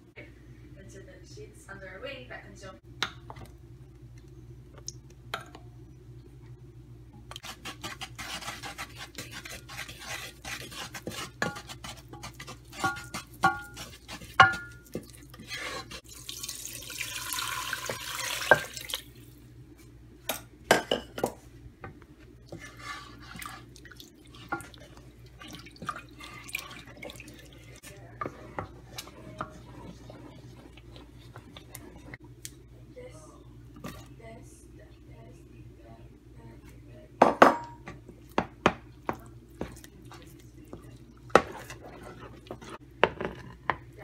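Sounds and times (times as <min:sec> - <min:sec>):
steady low hum: 0:00.0 - 0:16.2, 0:18.9 - 0:44.0
spatula scraping a saucepan: 0:07.4 - 0:16.1, 0:22.4 - 0:32.2, 0:39.6 - 0:43.7
stock pouring into a pan: 0:16.1 - 0:19.1.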